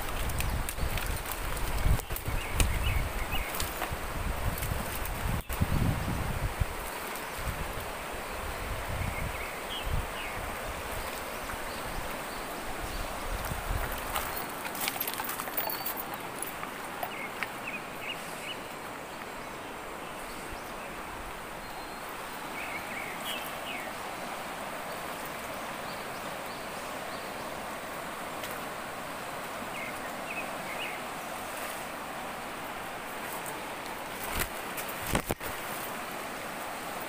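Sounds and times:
river rapids rushing over rocks: 0:09.4 - 0:37.0.

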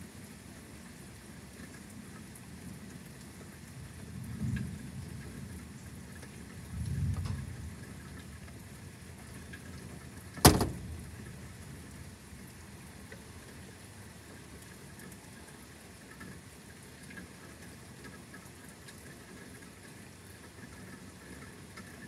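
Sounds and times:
steady rain: 0:00.0 - 0:22.0
sharp thunder crack: 0:10.4 - 0:11.2
thunder rumbling: 0:10.4 - 0:11.5.

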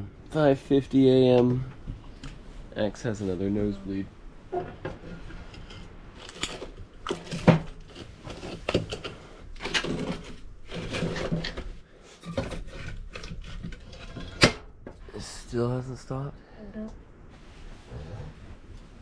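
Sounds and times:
coals scraping: 0:04.5 - 0:15.3.

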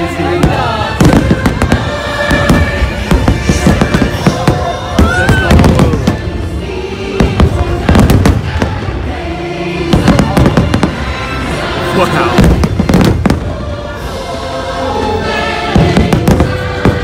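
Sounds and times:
music: 0:00.0 - 0:17.0
fireworks bangs: 0:00.2 - 0:06.5, 0:07.1 - 0:09.1, 0:09.8 - 0:11.4, 0:12.2 - 0:13.6, 0:15.7 - 0:17.0.

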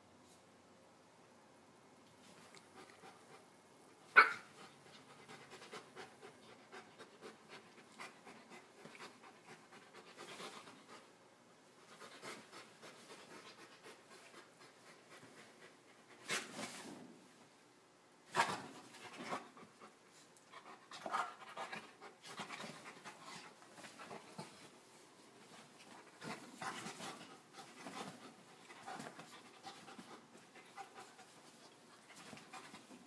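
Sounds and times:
dog panting: 0:04.6 - 0:11.1, 0:19.0 - 0:24.7, 0:25.5 - 0:33.0.

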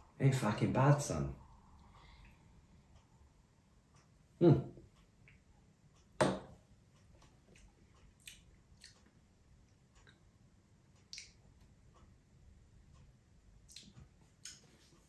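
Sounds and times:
glass set down on wooden table: 0:06.2 - 0:06.5
lip smacks and mouth clicks: 0:07.2 - 0:10.2, 0:11.0 - 0:11.6, 0:13.6 - 0:14.7.

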